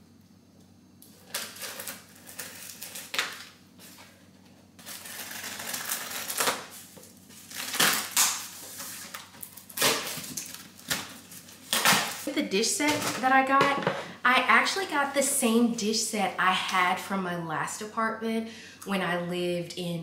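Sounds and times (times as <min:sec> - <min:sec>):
packing tape cut and torn: 0:01.0 - 0:04.1, 0:04.8 - 0:12.3.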